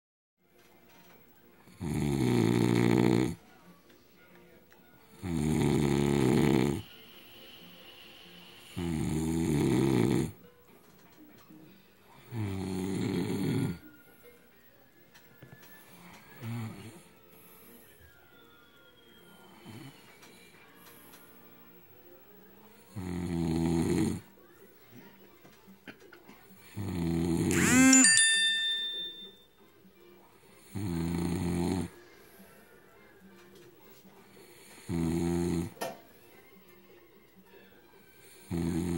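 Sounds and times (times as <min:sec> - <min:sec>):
man snoring loudly: 0:01.7 - 0:03.4, 0:05.2 - 0:06.9, 0:08.7 - 0:10.4, 0:12.3 - 0:13.8, 0:23.0 - 0:24.2, 0:26.8 - 0:27.6, 0:30.7 - 0:31.9, 0:34.8 - 0:35.7, 0:38.5 - 0:38.9
short high ringing note: 0:27.5 - 0:29.4.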